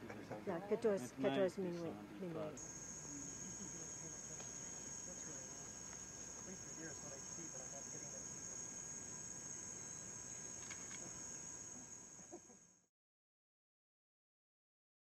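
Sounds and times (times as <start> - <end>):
high-pitched insect trilling: 2.6 - 12.9.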